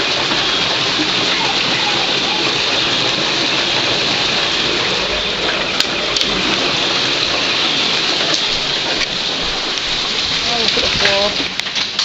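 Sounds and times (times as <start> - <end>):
hail pelting down: 0.0 - 12.0.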